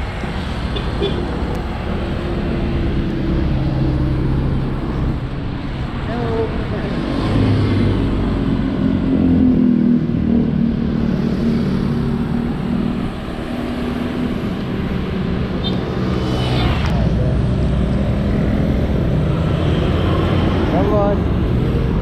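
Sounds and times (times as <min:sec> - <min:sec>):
road noise: 0:00.0 - 0:22.0
whoosh of something passing: 0:16.0 - 0:18.9.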